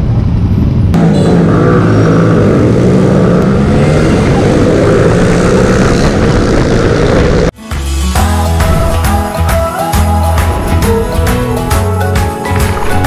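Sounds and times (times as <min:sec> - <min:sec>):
other motorcycles racing: 0:00.3 - 0:07.6
motorcycle engine revving hard: 0:00.9 - 0:07.6.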